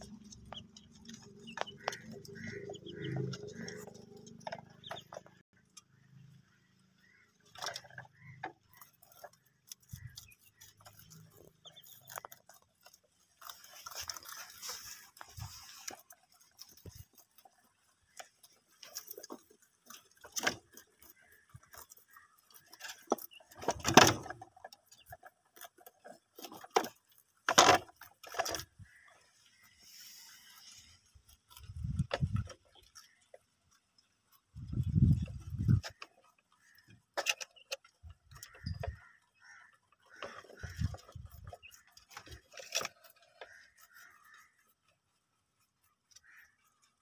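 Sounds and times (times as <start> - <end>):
rustle of greens: 8.2 - 23.1, 28.5 - 36.0.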